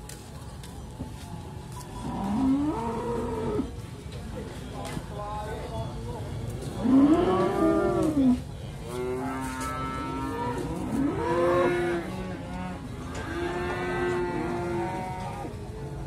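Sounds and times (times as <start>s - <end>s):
cattle mooing: 9.0s - 15.5s.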